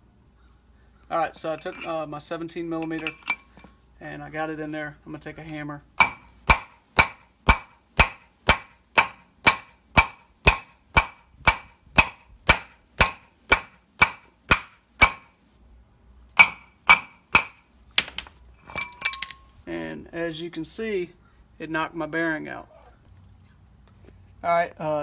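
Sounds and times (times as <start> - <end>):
hammer striking metal socket: 2.8 - 3.4.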